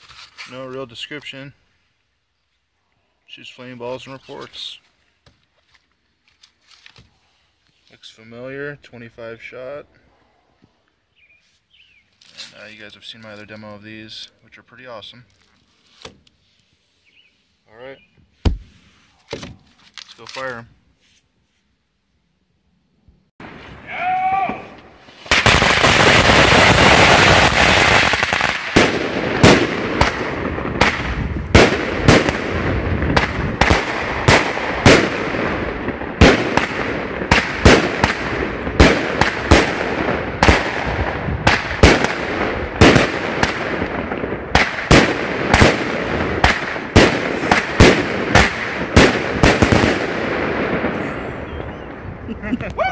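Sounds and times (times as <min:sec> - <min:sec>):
firework cake shots with sharp reports: 0:23.4 - 0:52.2
rapid crackle of firecrackers: 0:24.5 - 0:52.3.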